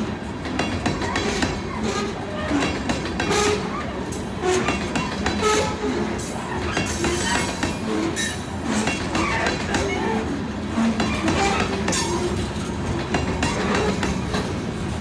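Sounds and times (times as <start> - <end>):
freight train rumble: 0.0 - 15.0
wheel clacks over rail joints: 0.3 - 15.0
wheels squeaking and squealing: 0.9 - 12.7.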